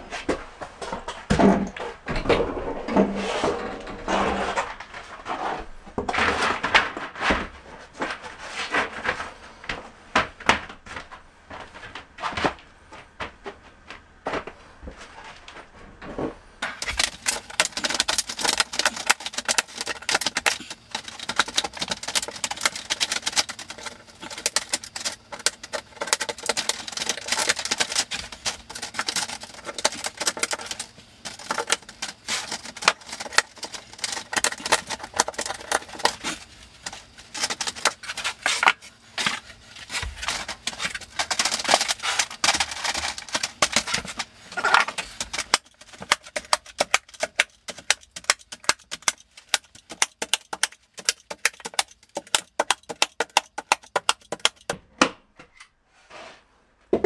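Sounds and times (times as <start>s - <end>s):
metal lath rustling and scraping: 0.0s - 9.4s.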